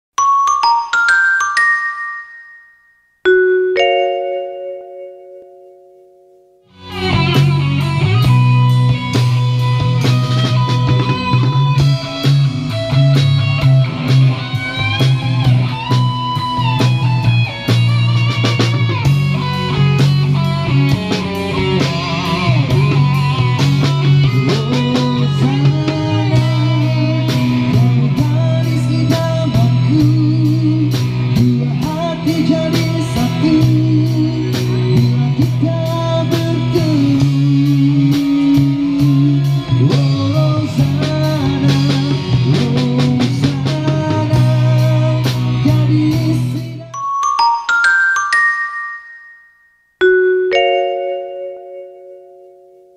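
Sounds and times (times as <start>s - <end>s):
electric guitar melody: 3.3s - 49.4s, 50.0s - 52.9s
bass guitar: 6.7s - 48.6s
drum kit: 6.8s - 46.8s.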